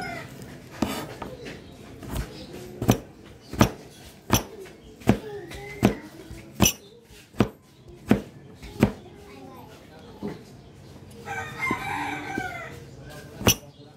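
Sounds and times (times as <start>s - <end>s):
knife chopping on cutting board: 2.0s - 9.0s, 13.4s - 13.6s.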